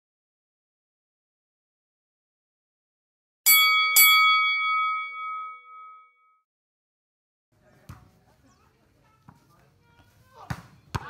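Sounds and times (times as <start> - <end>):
notification bell dings: 3.5 - 6.4.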